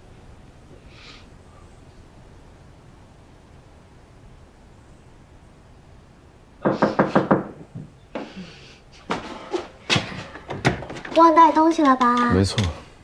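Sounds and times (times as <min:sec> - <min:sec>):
knocking on a door: 0:06.6 - 0:07.9.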